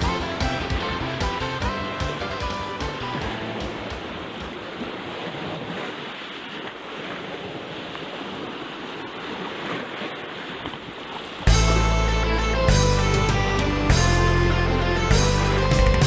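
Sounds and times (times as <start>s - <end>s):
sea surf washing over rocks: 0.1s - 11.5s.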